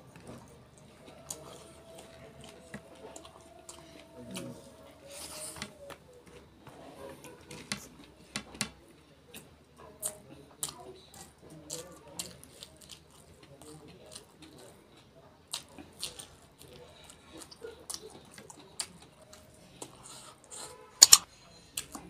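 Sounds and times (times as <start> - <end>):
wet chewing and lip smacking: 9.3 - 22.0
sharp mouth clicks: 21.0 - 21.2.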